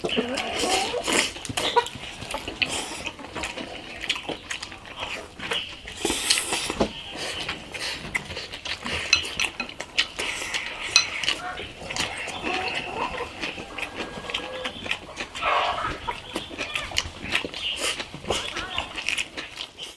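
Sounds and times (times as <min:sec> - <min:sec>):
people chewing noisily: 0:00.0 - 0:19.9
chopsticks clicking on porcelain bowls: 0:09.0 - 0:12.1.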